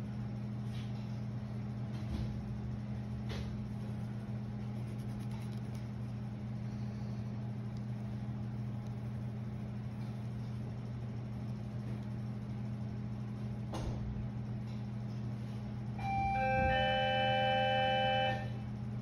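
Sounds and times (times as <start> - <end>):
low mechanical hum of machinery: 0.0 - 19.0
pencil scratching on paper: 3.7 - 5.9.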